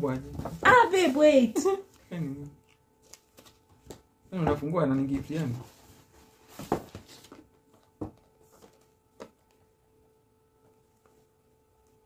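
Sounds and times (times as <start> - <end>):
faint electrical hum: 0.0 - 12.0
cardboard box taps and rustles: 6.5 - 7.4.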